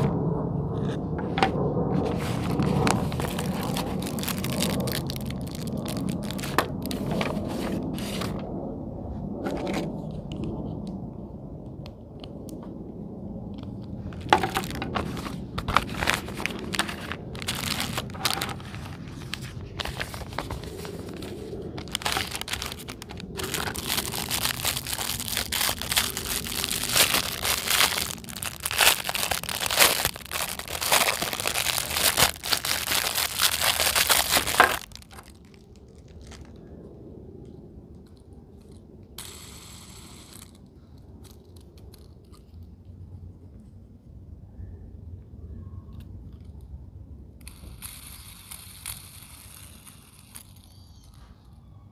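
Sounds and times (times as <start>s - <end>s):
packaging crinkling and tearing: 2.0s - 8.5s, 13.6s - 36.7s, 38.6s - 42.5s, 47.4s - 51.2s.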